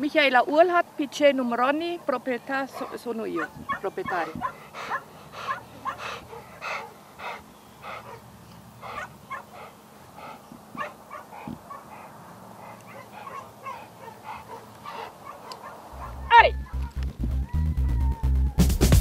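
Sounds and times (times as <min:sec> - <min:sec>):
dog panting: 0:02.7 - 0:16.9.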